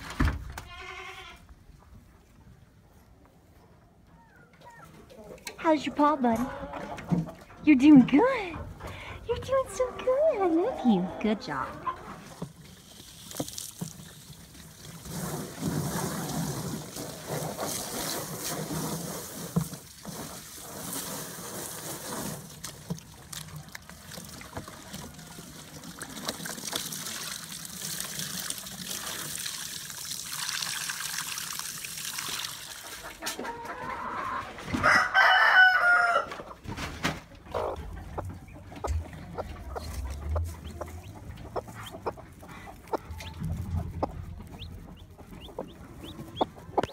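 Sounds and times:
chickens clucking: 0:04.4 - 0:12.8, 0:32.7 - 0:46.9
rooster crowing: 0:34.8 - 0:36.4.

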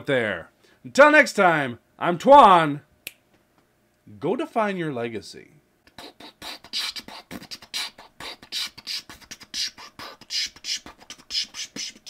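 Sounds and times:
person beatboxing: 0:05.9 - 0:12.0.

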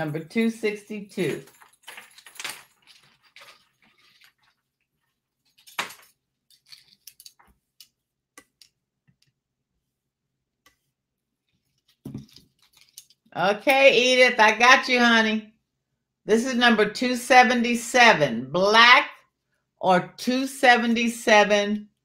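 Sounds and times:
metal chain necklace clinking: 0:01.2 - 0:04.6, 0:05.4 - 0:07.4.

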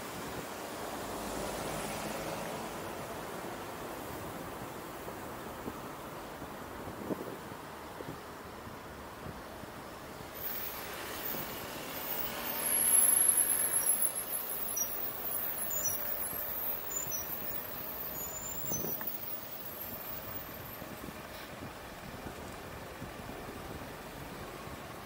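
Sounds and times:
city road traffic: 0:00.0 - 0:25.0
faint high squeals: 0:10.4 - 0:21.0.

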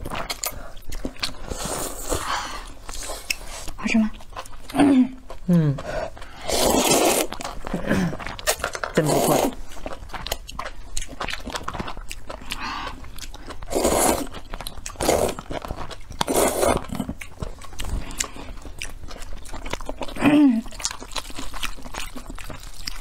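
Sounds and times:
wet chewing: 0:00.0 - 0:23.0
noodles slurped: 0:05.9 - 0:11.5, 0:12.3 - 0:18.7.

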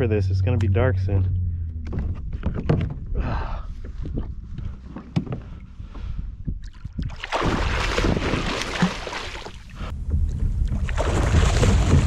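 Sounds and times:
wind rumble on microphone: 0:00.0 - 0:08.6, 0:09.5 - 0:12.0
water splashing around kayak: 0:06.5 - 0:12.0.

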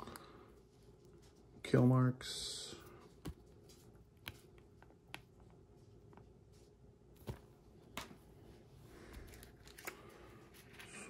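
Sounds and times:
plastic and paper crinkling: 0:09.0 - 0:11.0.

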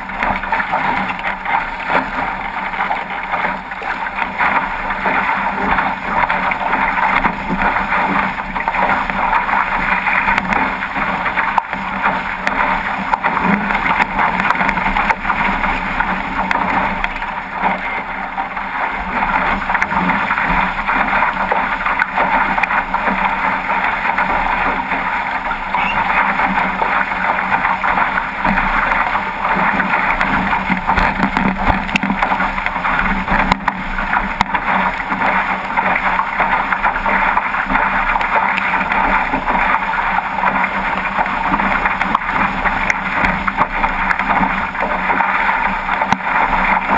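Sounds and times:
water rushing along boat hull: 0:00.0 - 0:46.9.

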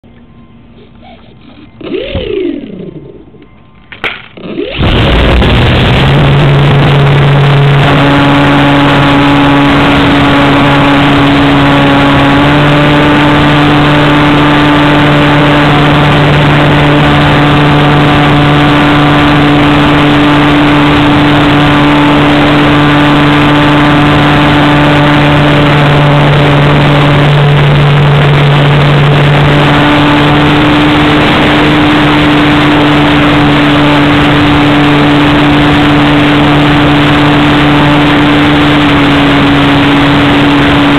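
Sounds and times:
electric motor and propeller drone: 0:00.7 - 0:40.9
rushing air: 0:04.4 - 0:14.2.

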